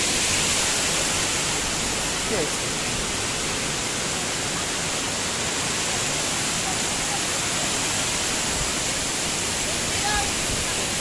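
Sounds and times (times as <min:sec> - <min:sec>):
water rushing through channel: 0:00.0 - 0:11.0.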